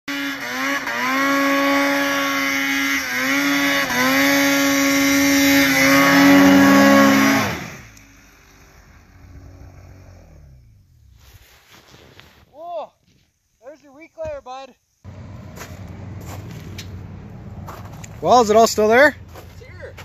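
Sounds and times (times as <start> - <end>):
snowmobile engine running hard: 0.1 - 7.9.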